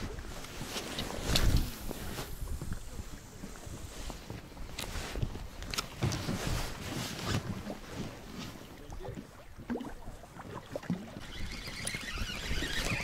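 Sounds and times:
fishing gear knocks and rustles: 0.0 - 3.5, 4.2 - 8.5.

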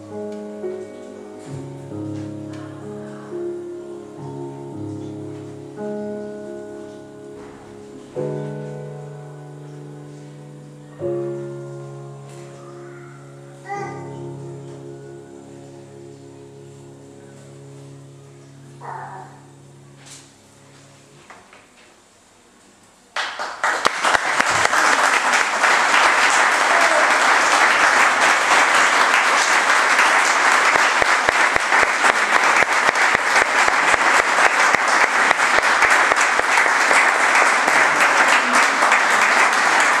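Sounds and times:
audience applauding: 23.2 - 40.0.

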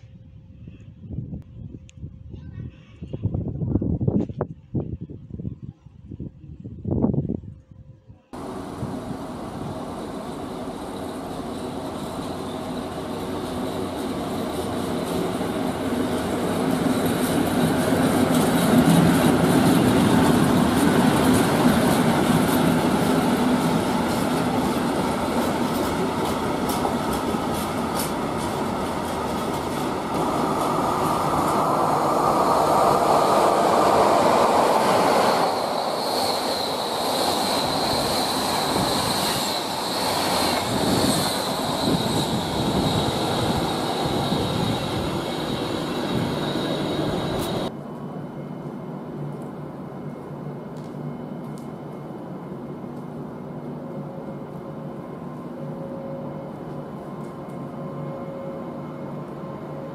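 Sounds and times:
high steady squeal: 8.4 - 47.7
train rumble: 8.4 - 59.9.

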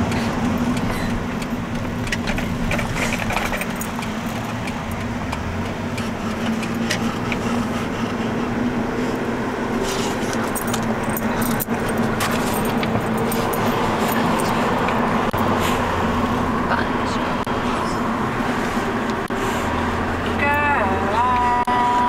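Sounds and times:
car road and engine noise: 0.0 - 22.0
light metallic jingling: 10.4 - 15.5.

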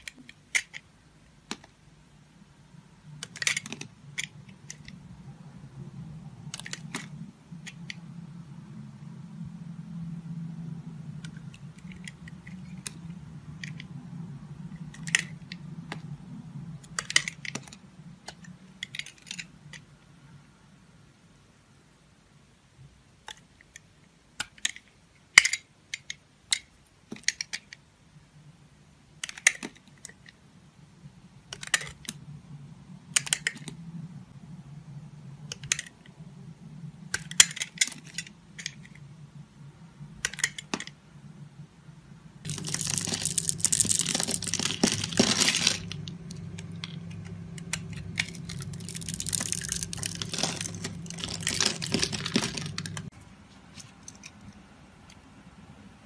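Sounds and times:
low hum: 41.0 - 53.4
crackling scrape: 42.5 - 46.6, 47.2 - 53.1.

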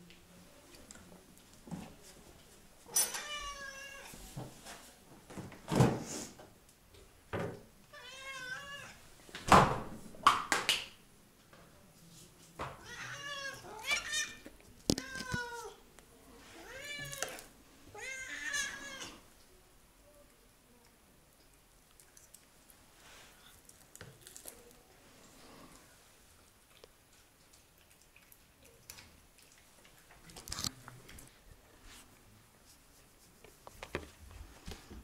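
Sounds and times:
cats meowing: 3.0 - 4.2, 7.9 - 9.0, 12.8 - 15.8, 16.6 - 19.2.

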